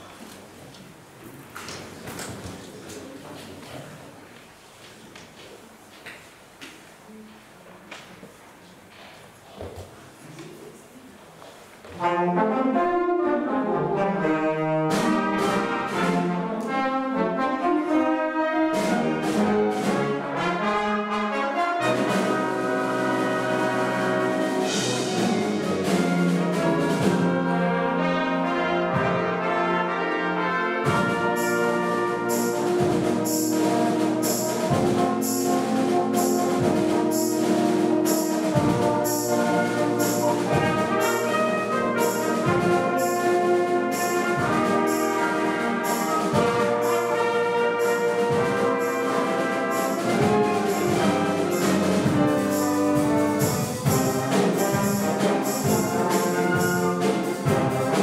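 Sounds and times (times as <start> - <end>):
brass chords: 11.8 - 58.0
steady drum beat: 21.8 - 29.5, 30.8 - 58.0.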